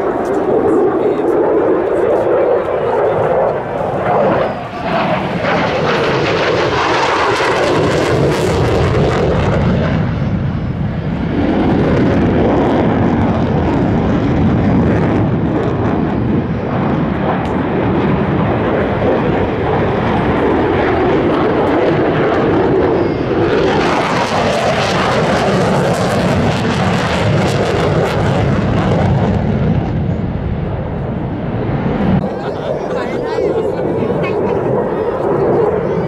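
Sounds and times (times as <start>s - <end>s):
fighter jet engine roar: 0.0s - 36.0s.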